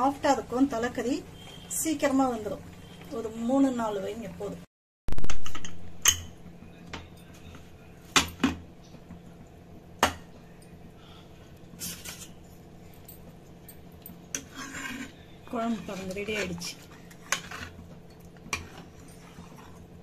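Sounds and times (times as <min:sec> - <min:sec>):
metal scraping rasp: 0:14.3 - 0:17.8.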